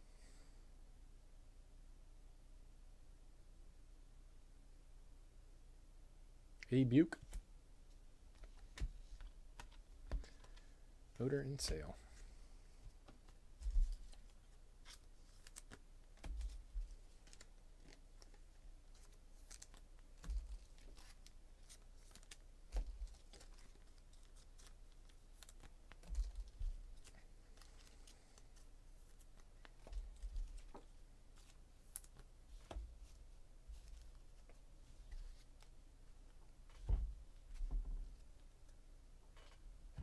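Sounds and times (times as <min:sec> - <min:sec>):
soft thump: 0:36.8 - 0:38.0.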